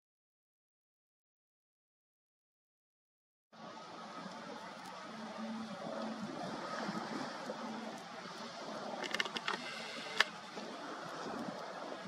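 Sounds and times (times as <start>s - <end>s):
wind: 3.5s - 12.0s
water lapping: 3.6s - 12.0s.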